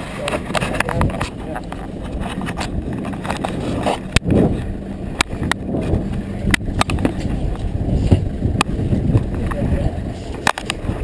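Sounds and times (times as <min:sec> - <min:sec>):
boat engine rumbling: 0:00.0 - 0:11.0
wind on microphone: 0:00.0 - 0:11.0
camera handling clicks and knocks: 0:10.4 - 0:10.8.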